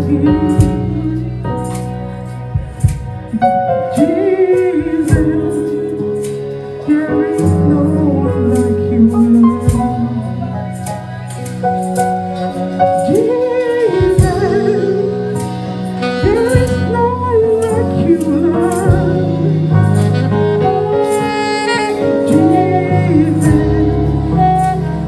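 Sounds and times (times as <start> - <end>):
women singing into microphones: 0.0 - 1.8, 3.9 - 10.9, 12.9 - 20.2, 21.0 - 25.0
band with steady beat: 0.0 - 25.0.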